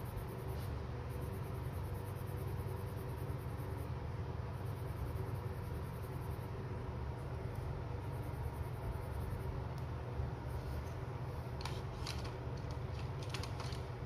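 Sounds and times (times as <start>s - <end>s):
steady low hum: 0.0s - 14.0s
paper rustling: 10.8s - 14.0s
light clicks of pencils: 11.6s - 13.9s.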